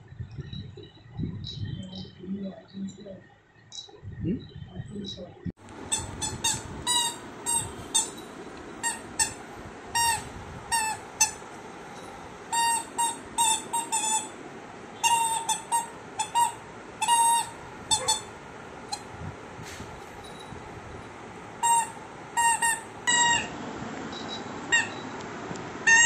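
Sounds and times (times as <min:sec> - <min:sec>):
squeaky toy squeaking: 0:05.9 - 0:09.4, 0:10.0 - 0:11.4, 0:12.5 - 0:14.4, 0:15.0 - 0:18.3, 0:21.6 - 0:23.5, 0:24.7 - 0:25.0.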